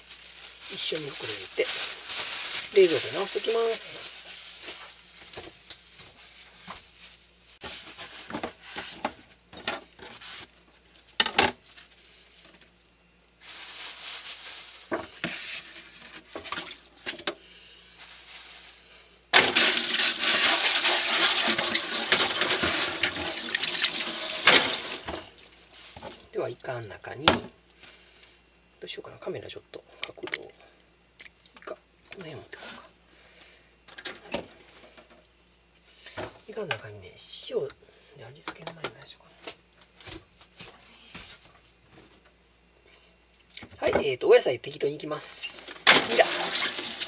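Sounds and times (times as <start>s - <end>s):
kitchen tap running: 19.4s - 25.1s, 46.0s - 47.0s.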